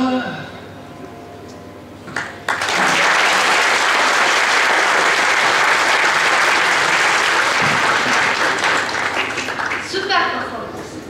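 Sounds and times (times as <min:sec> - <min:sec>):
crowd applauding: 0:02.2 - 0:10.1.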